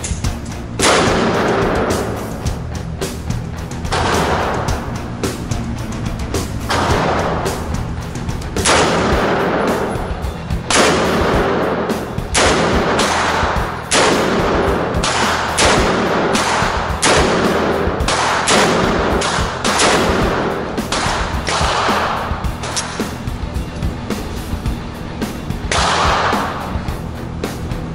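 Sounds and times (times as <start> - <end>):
pistol shots echoing indoors: 0.0 - 2.6, 3.8 - 5.5, 6.6 - 8.0, 8.6 - 23.2, 25.6 - 26.9
rock music: 0.0 - 27.9.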